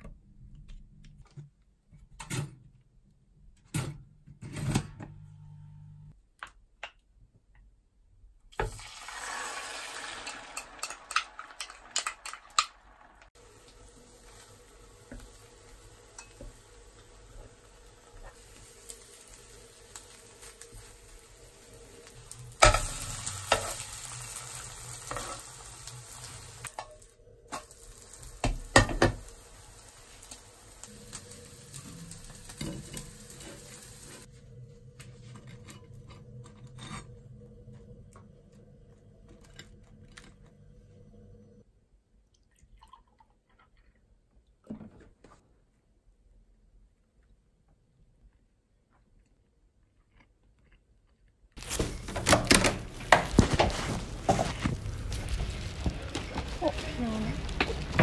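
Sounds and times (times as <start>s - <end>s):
egg sizzling in frying pan: 8.6s - 34.4s, 51.6s - 58.0s.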